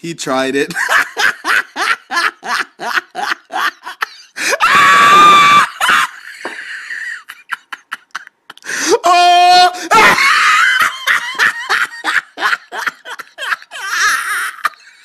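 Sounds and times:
high-pitched shrieking laugh: 0.8 - 8.4, 9.1 - 15.0
hysterical laughter: 0.8 - 8.6, 9.8 - 15.0
breathy wheezing gasps: 4.3 - 4.6, 8.6 - 9.0.

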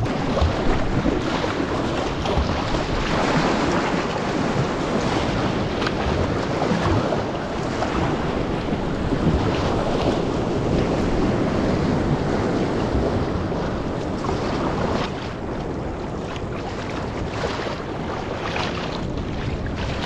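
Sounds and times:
sea water rushing and splashing: 0.0 - 20.0
wind buffeting microphone: 0.0 - 20.0.

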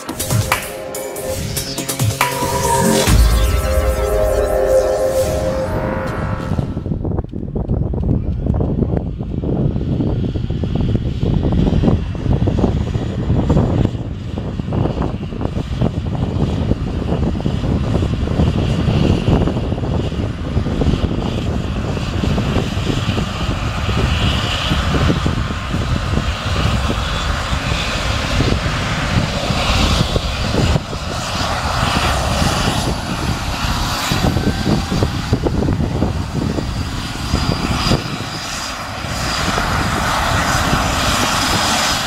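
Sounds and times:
faint high whine rising in pitch: 0.0 - 7.2
turbine engine whine: 0.0 - 42.0
helicopter rotor rumble: 6.6 - 42.0.

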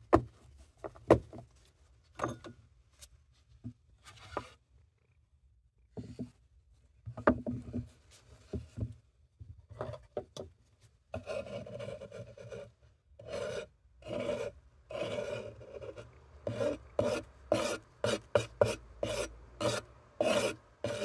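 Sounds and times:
knife scraping granules on wood: 11.2 - 21.0.

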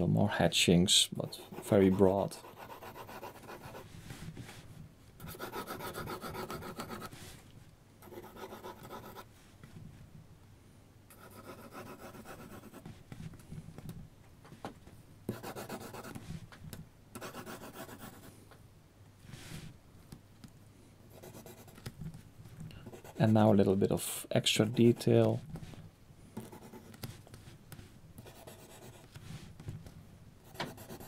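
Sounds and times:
pencil scratching on paper: 1.3 - 3.9, 5.2 - 7.2, 8.0 - 9.2, 11.1 - 12.9, 15.3 - 16.2, 17.2 - 18.3, 21.1 - 21.8, 22.8 - 23.5, 26.4 - 27.6, 28.2 - 29.2, 30.4 - 31.0.

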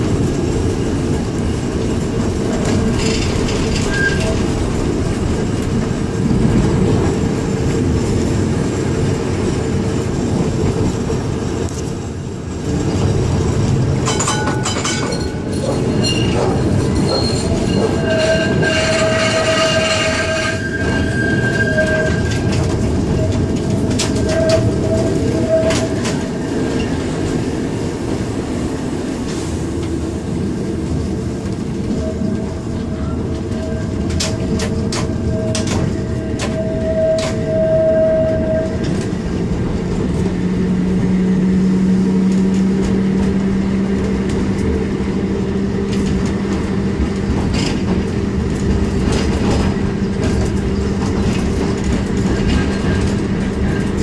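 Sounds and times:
tram rumbling on rails: 0.0 - 54.0
high wheel squeal: 3.0 - 4.4, 15.1 - 23.4, 24.0 - 26.2, 31.8 - 39.1.

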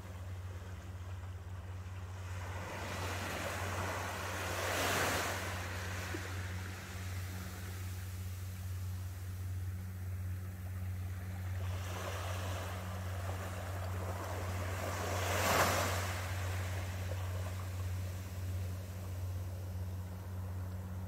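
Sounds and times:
steady low hum: 0.0 - 21.0
wave washing onto sand: 2.2 - 8.1, 11.6 - 19.0.

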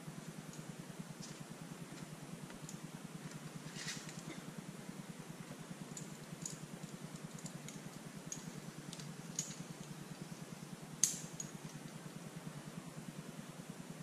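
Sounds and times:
steady low hum: 0.0 - 14.0
climbing hardware clinking: 5.9 - 10.3, 11.0 - 12.0.

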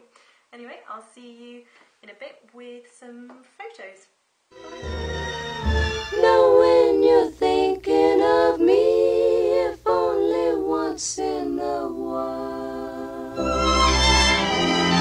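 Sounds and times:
backing music with low bass: 4.6 - 7.2.

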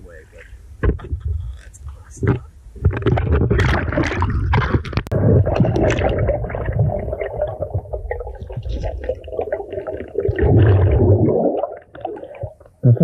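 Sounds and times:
muffled underwater rumble: 0.0 - 13.0.

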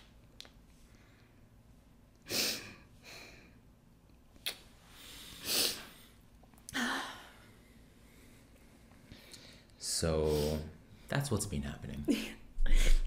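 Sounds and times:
woman sniffling: 2.2 - 3.4, 5.3 - 6.0.

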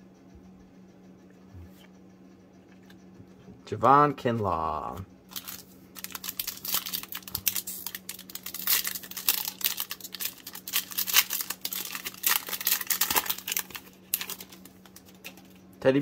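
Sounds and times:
foil wrapper tearing and crinkling: 5.3 - 15.6.

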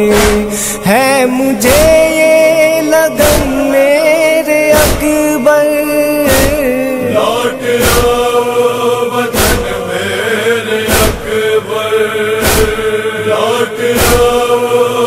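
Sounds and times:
heavy chest-beats: 0.0 - 0.9, 1.6 - 2.1, 3.2 - 3.6, 4.7 - 5.3, 7.7 - 8.4, 9.3 - 9.9, 10.8 - 11.5, 12.4 - 13.0, 13.9 - 14.6
male chorus chanting: 0.0 - 15.0.

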